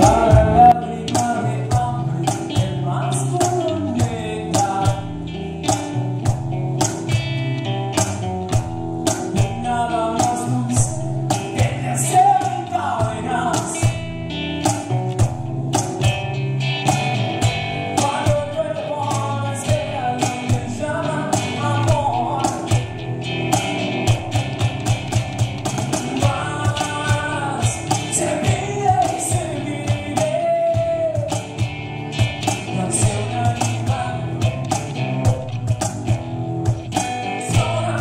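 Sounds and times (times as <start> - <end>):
man singing into a microphone: 0.0 - 5.3, 9.3 - 14.0, 17.9 - 22.8, 26.0 - 31.6, 32.6 - 34.7, 37.2 - 38.0
cajon keeping a steady beat: 0.0 - 38.0
electric bass: 0.0 - 38.0
strummed acoustic guitar: 0.0 - 38.0.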